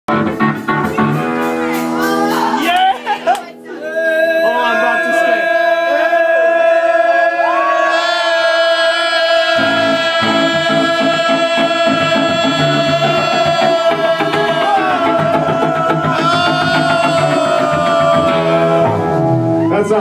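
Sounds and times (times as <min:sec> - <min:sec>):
distorted electric guitar: 0:00.1 - 0:02.7, 0:09.5 - 0:20.0
bass: 0:00.1 - 0:03.2, 0:09.6 - 0:20.0
drums: 0:00.1 - 0:03.3, 0:09.6 - 0:20.0.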